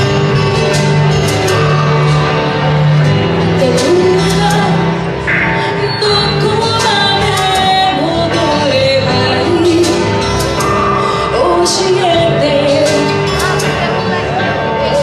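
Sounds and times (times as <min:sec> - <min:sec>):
instrumental backing track: 0:00.0 - 0:15.0
woman singing pop ballad: 0:03.6 - 0:15.0.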